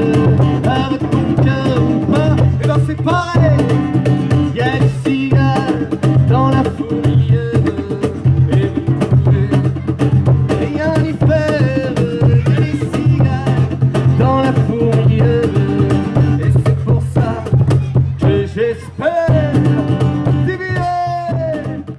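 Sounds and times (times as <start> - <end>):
man singing: 0.0 - 21.9
strummed acoustic guitar: 0.0 - 21.9.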